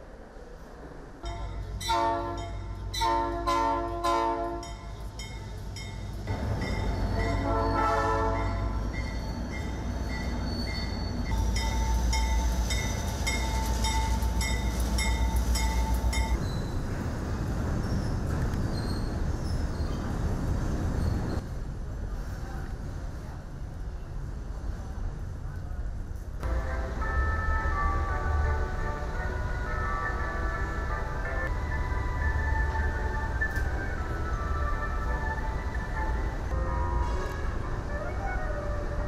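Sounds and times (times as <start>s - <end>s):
train rumbling past: 0.0s - 39.0s
wheels clacking over rail joints: 1.2s - 20.2s
locomotive horn: 1.8s - 4.8s, 7.2s - 8.8s, 36.5s - 38.9s.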